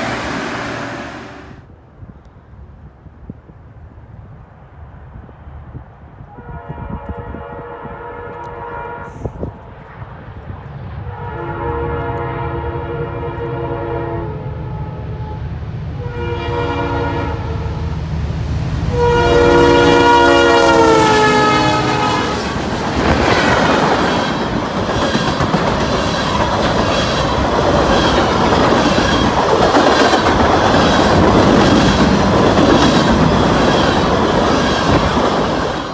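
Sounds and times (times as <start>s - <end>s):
freight cars rushing past: 0.0s - 1.7s
locomotive engine rumble: 0.0s - 1.7s
train air horn blasts: 6.3s - 9.5s, 11.1s - 18.0s, 18.9s - 22.6s
wheels clacking over rail joints: 22.3s - 35.9s.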